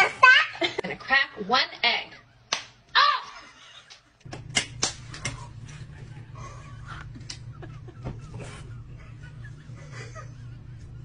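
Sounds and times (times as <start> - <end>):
steady low hum: 3.7 - 11.0.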